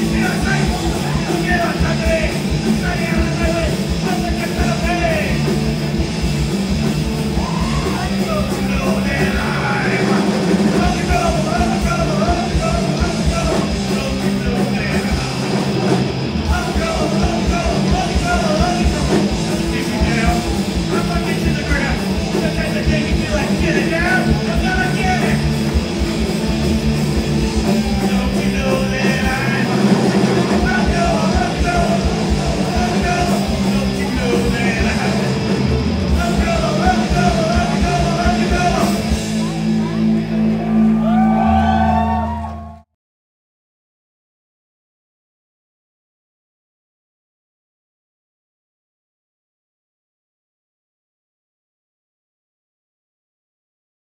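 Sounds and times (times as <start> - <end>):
singer shouting vocals: 0.0 - 5.6, 7.3 - 15.6, 16.4 - 25.6, 27.5 - 42.8
electric guitars: 0.0 - 42.8
bass guitar: 0.0 - 42.9
drums: 0.0 - 42.9.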